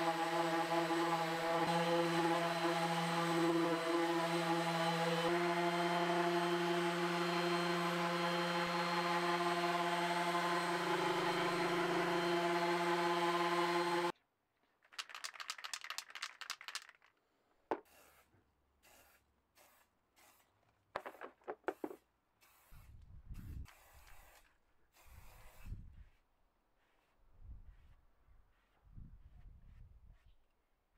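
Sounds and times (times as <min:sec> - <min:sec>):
orbital sander running: 0:00.0 - 0:14.1
spray can rattling when shaken: 0:14.8 - 0:18.2, 0:21.0 - 0:22.8.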